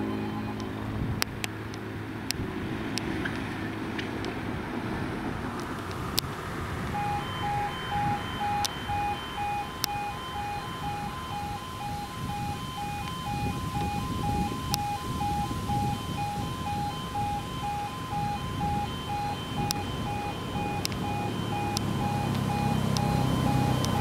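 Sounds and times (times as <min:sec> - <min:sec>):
two-tone electronic alarm pulsing: 0:00.0 - 0:00.8, 0:06.9 - 0:24.0
passing vehicle engine hum: 0:00.0 - 0:24.0.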